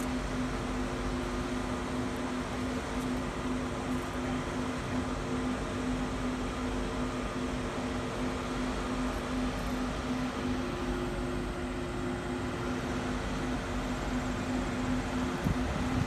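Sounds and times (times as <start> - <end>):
steady mechanical hum: 0.0 - 16.0.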